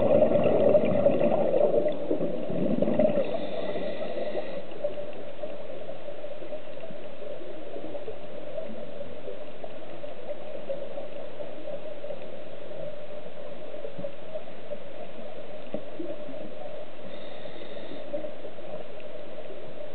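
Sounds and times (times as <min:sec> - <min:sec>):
faint gurgling: 0:00.0 - 0:04.8
underwater hum: 0:00.0 - 0:19.9.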